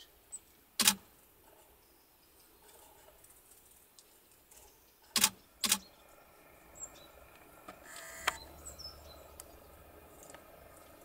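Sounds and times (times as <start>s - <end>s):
camera shutter clicking: 0.8s - 1.0s, 7.8s - 8.4s
faint high bird chirps: 4.6s - 9.8s.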